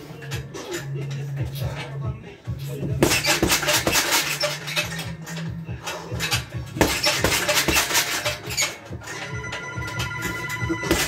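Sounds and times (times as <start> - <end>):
boxing gloves thudding heavy bag: 2.9 - 4.3, 6.8 - 8.2, 10.8 - 11.0.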